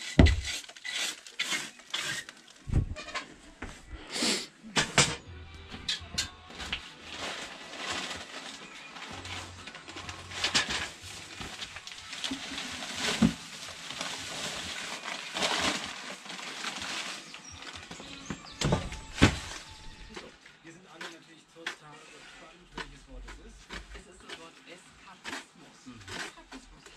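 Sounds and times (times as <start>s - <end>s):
bags crinkling and rustling: 0.0s - 2.7s, 6.5s - 20.4s.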